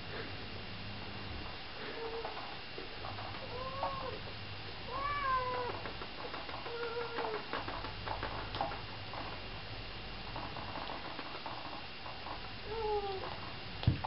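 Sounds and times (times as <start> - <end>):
cat meowing: 4.9 - 5.8.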